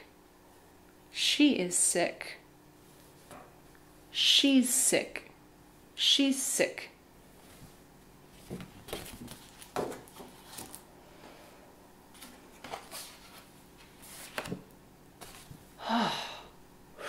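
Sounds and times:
paper cards rustling and tapping: 8.4 - 10.8, 12.1 - 15.6.

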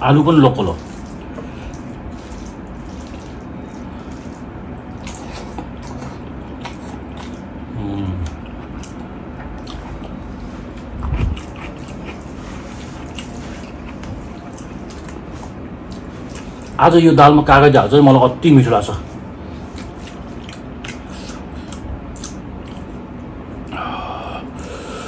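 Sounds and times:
close chewing with mouth clicks: 0.8 - 16.8, 19.6 - 23.8
closed-mouth hums: 6.6 - 9.1, 20.5 - 25.0.

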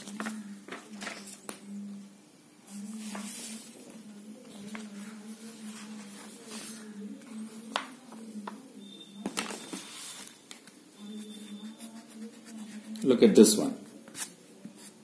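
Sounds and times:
paper rustling: 2.8 - 3.9, 9.2 - 10.7.

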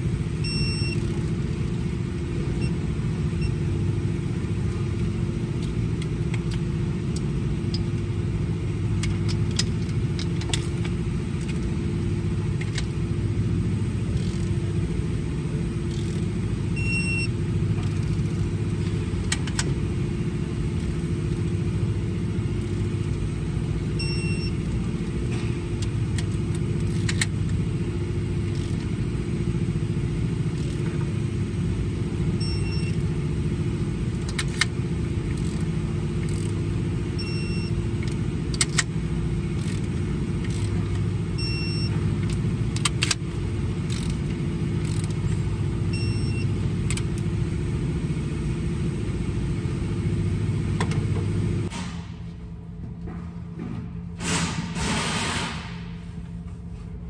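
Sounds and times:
low machine rumble and hum: 0.0 - 57.0
tools and metal parts clicking: 0.8 - 2.3, 4.4 - 8.0, 8.9 - 11.8, 12.5 - 13.0, 14.1 - 14.7, 15.8 - 16.4, 17.8 - 19.8, 20.7 - 21.6, 22.5 - 23.2, 24.5 - 27.6, 28.5 - 28.9, 30.5 - 31.0, 34.1 - 36.6, 37.5 - 38.9, 39.5 - 41.0, 41.6 - 45.4.

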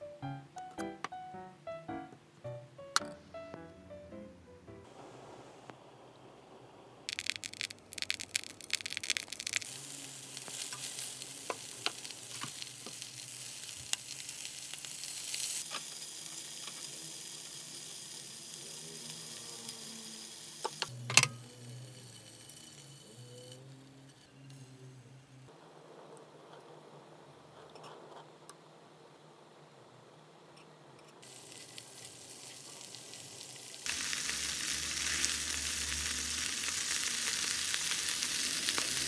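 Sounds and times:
food sizzling in hot oil: 7.1 - 24.7, 31.2 - 39.0.

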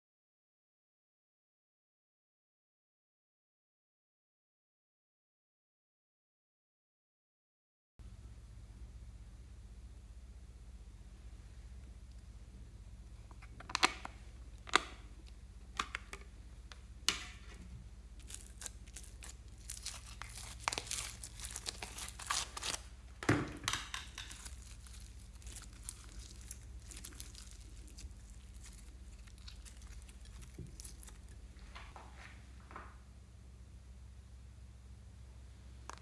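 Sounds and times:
slime crackling and tearing: 18.2 - 23.0, 23.7 - 31.6.

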